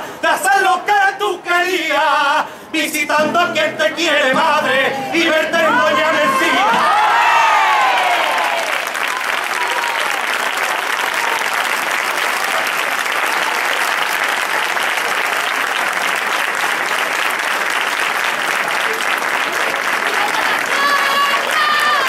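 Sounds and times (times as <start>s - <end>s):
large crowd applauding: 5.3s - 22.0s.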